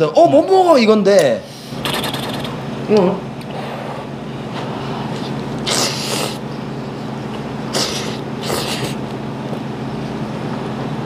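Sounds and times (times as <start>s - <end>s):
steady low hum: 0.0s - 11.0s
man slurping noodles: 1.6s - 2.6s, 3.4s - 6.4s, 7.7s - 9.0s.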